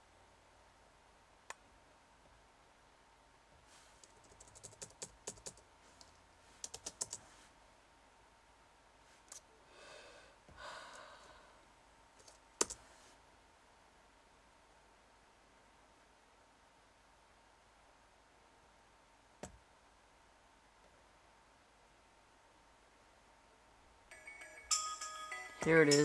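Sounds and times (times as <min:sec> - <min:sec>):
soft breathy noise: 0:03.6 - 0:04.1, 0:07.2 - 0:07.7, 0:09.0 - 0:11.8, 0:12.8 - 0:13.3
laptop keyboard typing: 0:04.0 - 0:05.6, 0:06.6 - 0:07.2, 0:12.2 - 0:12.8.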